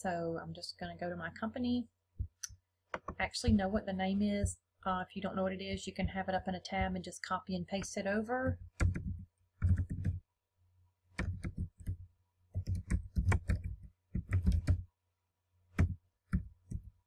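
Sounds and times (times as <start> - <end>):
typing on keyboard: 8.7 - 10.2, 11.2 - 12.0, 12.6 - 14.8.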